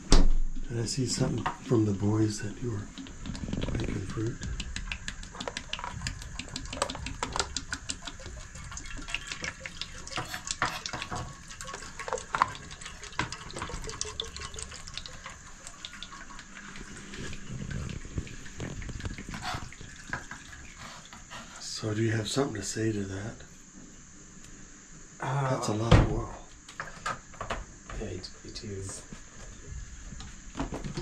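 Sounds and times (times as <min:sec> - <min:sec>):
oil pouring into a pot: 0:01.6 - 0:20.9
small irregular clicks: 0:02.8 - 0:10.6.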